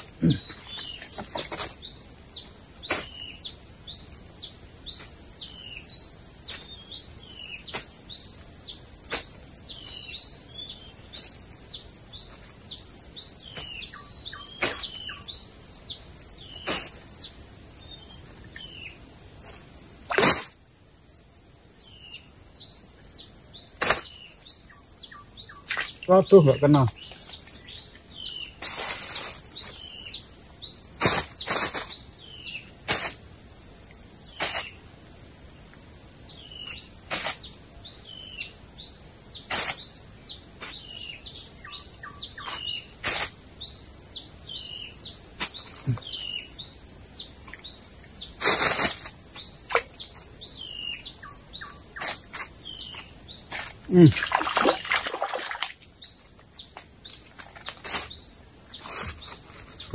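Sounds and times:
high-pitched insect drone: 0.0s - 20.6s, 24.6s - 59.9s
fish splashing in stream: 54.1s - 55.8s.

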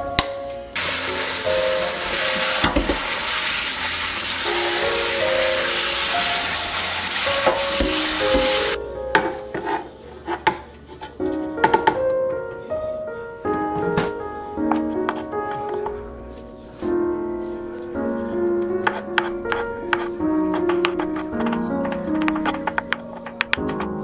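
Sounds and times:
soft background music: 0.0s - 24.0s
tap water running into colander: 0.8s - 8.8s.

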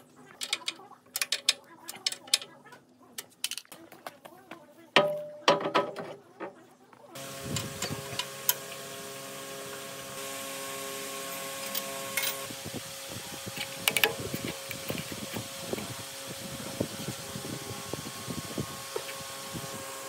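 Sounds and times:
clicks and knocks on metal parts: 0.4s - 2.6s, 3.2s - 3.8s
mechanical hum: 4.3s - 20.0s.

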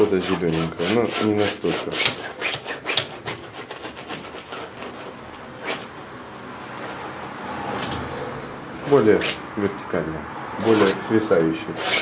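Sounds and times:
palette knife scraping canvas: 0.0s - 5.9s.

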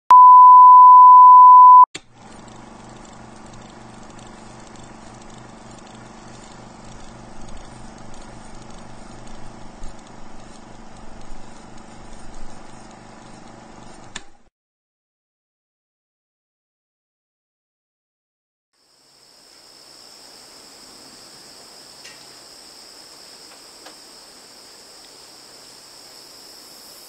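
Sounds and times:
loud test tone: 0.1s - 1.8s.

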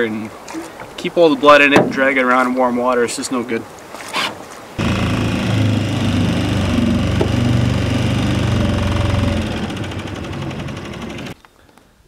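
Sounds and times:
outboard motor running: 4.8s - 11.4s.

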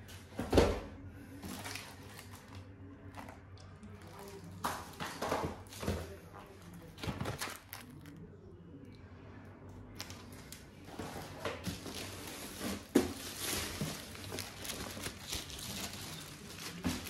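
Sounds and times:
plastic wrapping crinkling: 1.4s - 6.1s, 6.8s - 8.2s, 10.0s - 17.0s.

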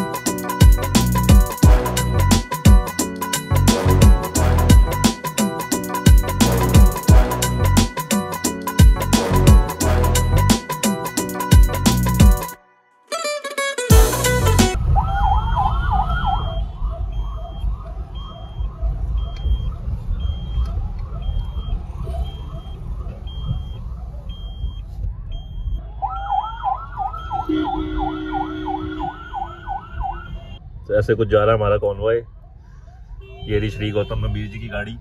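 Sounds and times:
electronic siren wailing and yelping: 14.0s - 30.6s
road rumble inside a car: 14.8s - 26.3s.

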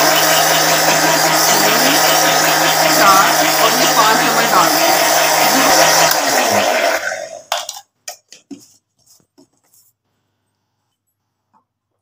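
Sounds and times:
electric mixer grinder running: 0.0s - 7.6s.

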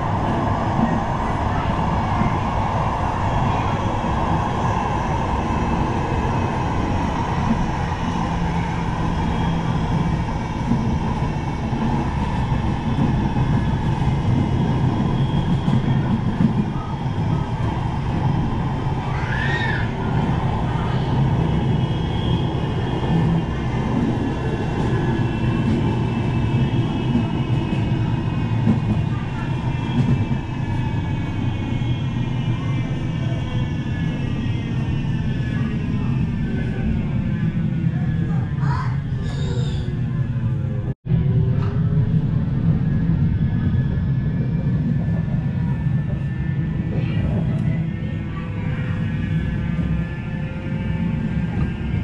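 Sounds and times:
tram wheels rumbling on rail: 0.0s - 52.0s.

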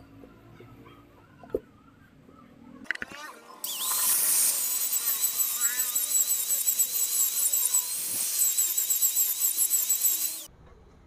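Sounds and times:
angle grinder cutting metal: 3.6s - 10.5s.

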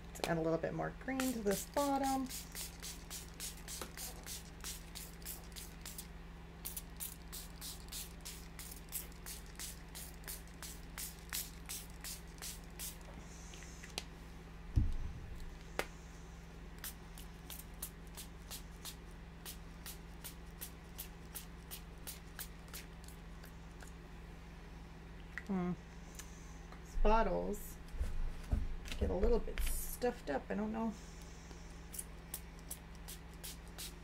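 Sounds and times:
spray bottle hissing: 1.6s - 6.0s, 6.6s - 13.0s, 31.9s - 34.0s
low thump: 14.7s - 15.3s.

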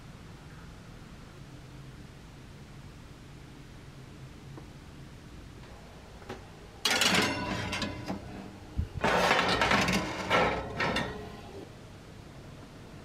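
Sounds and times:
metal trays rattling and scraping: 6.8s - 11.7s.

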